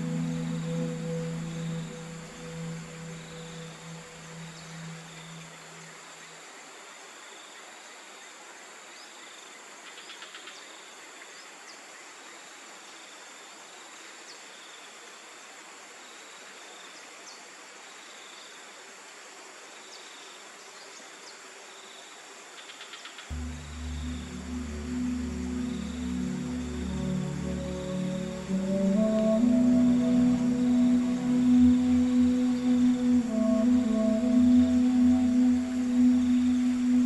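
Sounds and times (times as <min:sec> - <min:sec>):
soft pulsing chirp: 0:00.0 - 0:06.2, 0:23.3 - 0:37.0
insects calling: 0:00.0 - 0:08.3, 0:21.7 - 0:37.0
high insect hiss and drone: 0:00.0 - 0:37.0.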